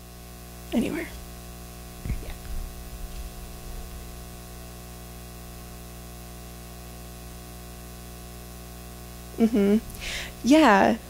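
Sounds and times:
low hum: 0:00.8 - 0:06.1.

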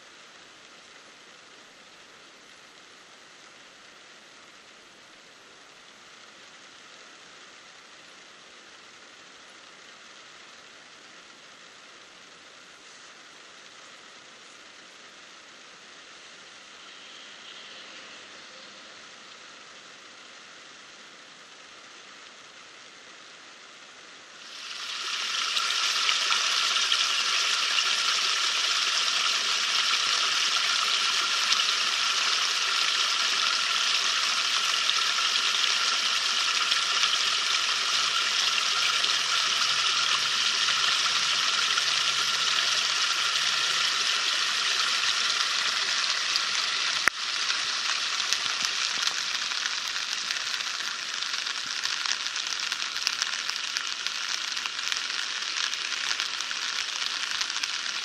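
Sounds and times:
water gushing through drain grate: 0:24.4 - 0:58.0.

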